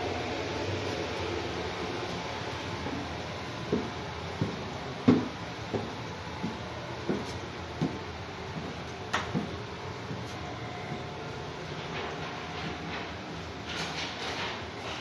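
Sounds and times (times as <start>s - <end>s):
footsteps on wooden stairs: 2.9s - 11.1s.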